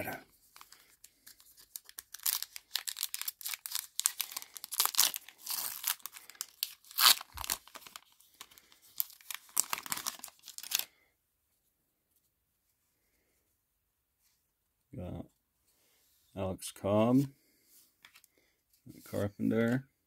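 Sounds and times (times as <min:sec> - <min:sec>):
foil wrapper tearing and crinkling: 0:00.6 - 0:10.9.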